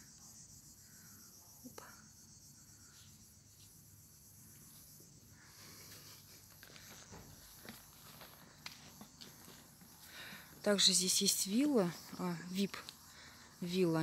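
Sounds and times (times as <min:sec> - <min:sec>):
high-pitched insect chorus: 0:00.0 - 0:14.0
soft footsteps on paving: 0:02.9 - 0:05.2, 0:05.8 - 0:10.9.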